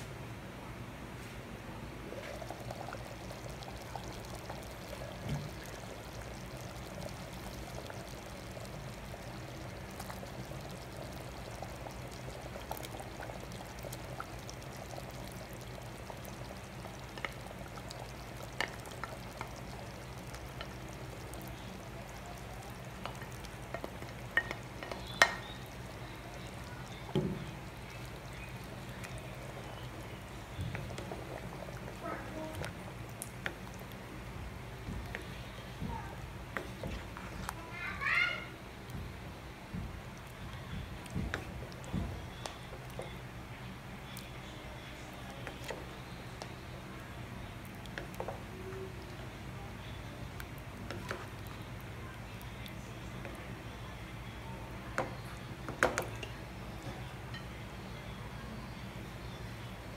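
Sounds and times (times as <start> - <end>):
stew bubbling in a pot: 2.0 - 59.9
wooden spoon stirring: 2.1 - 37.6, 39.8 - 43.3, 44.0 - 49.6, 50.2 - 53.5.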